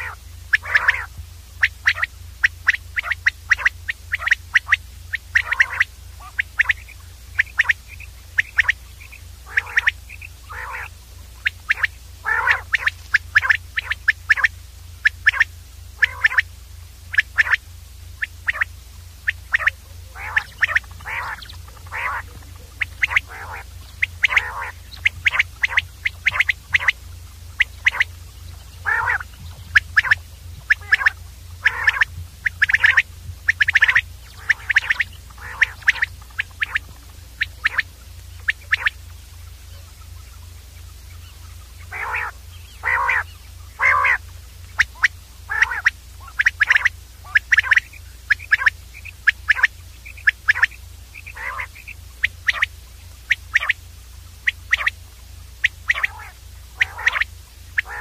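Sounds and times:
quail calling: 0.0s - 58.0s
steady low hum: 0.0s - 58.0s.

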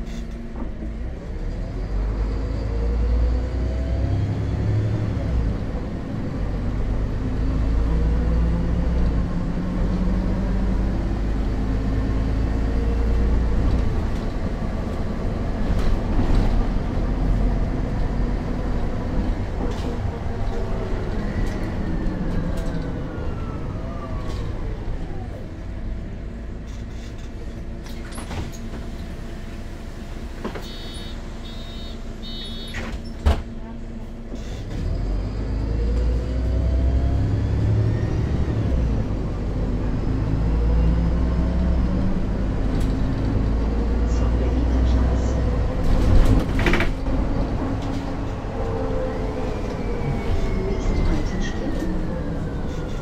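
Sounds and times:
bus engine running: 0.0s - 53.0s
door warning buzzer beeping: 30.6s - 32.8s
bus diesel engine idling: 42.4s - 45.9s.

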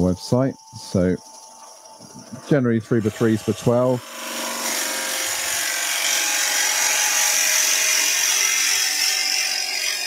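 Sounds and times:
wood lathe running hum: 2.1s - 10.0s.

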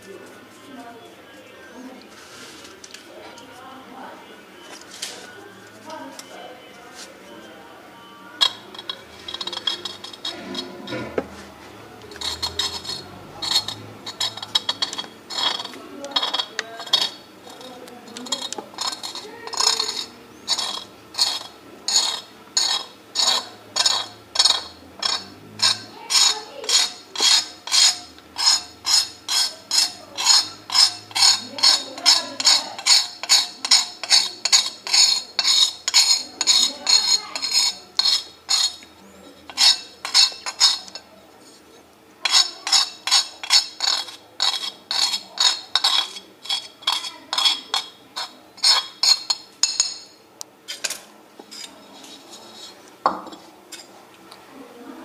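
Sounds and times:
knife scraping metal plate: 8.4s - 11.4s, 12.1s - 41.1s, 42.2s - 53.9s.

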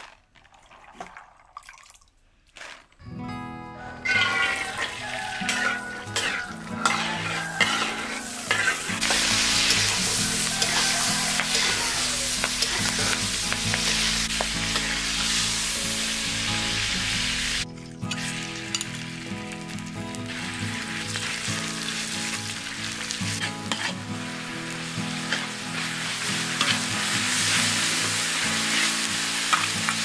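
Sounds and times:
metal spoon scraping wok: 4.0s - 15.8s, 23.3s - 24.1s, 25.2s - 30.0s
oil sizzling in wok: 4.1s - 30.0s.

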